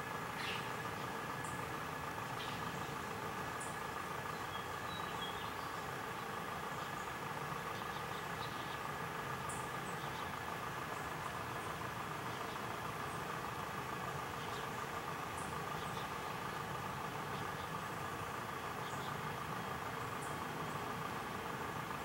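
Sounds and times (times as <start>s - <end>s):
steady mechanical hum: 0.0s - 22.0s.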